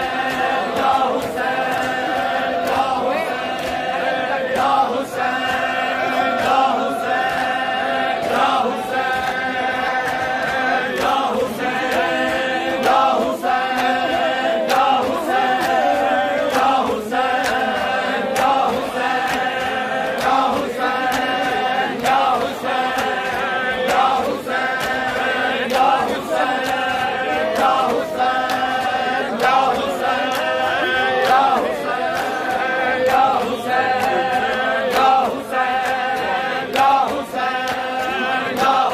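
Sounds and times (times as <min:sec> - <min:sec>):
men chanting in chorus: 0:00.0 - 0:38.9
hands slapping chests: 0:08.2 - 0:38.9.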